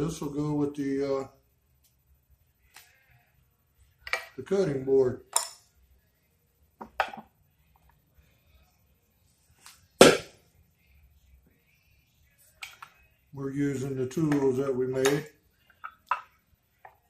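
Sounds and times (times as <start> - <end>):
tools knocking on wooden bench: 6.8 - 7.3.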